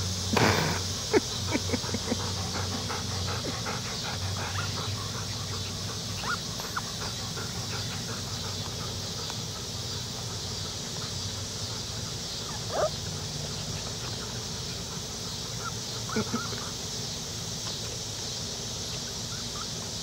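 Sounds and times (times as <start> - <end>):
steady high hiss: 0.0 - 20.0
puppies yipping and squealing: 0.8 - 20.0.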